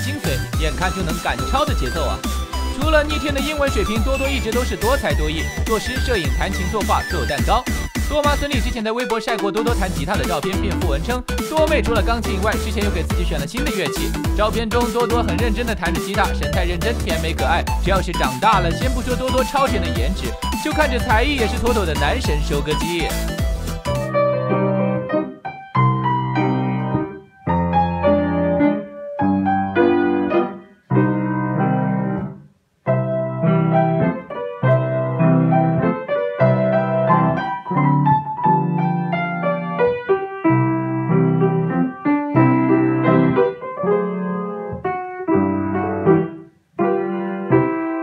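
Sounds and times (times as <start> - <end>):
child playing piano: 23.4 - 48.0.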